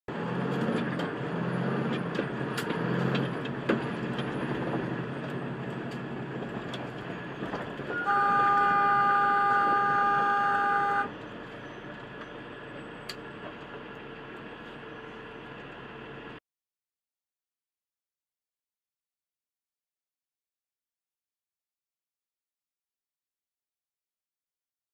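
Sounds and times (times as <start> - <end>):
vehicle horn blast: 7.9 - 11.2.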